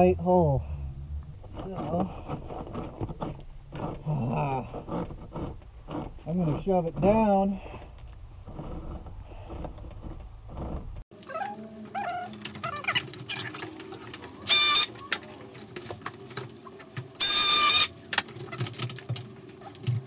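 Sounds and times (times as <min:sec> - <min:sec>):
cable rustling and scraping: 0:00.7 - 0:20.0
cable squealing against wood: 0:01.3 - 0:15.2, 0:17.2 - 0:18.8.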